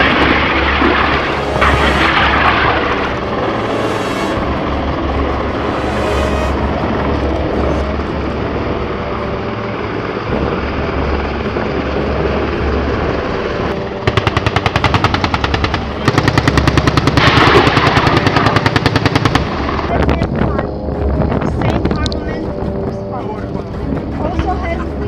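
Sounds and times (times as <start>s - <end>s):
helicopters flying: 0.0s - 25.0s
rapid automatic gunfire: 14.0s - 19.9s.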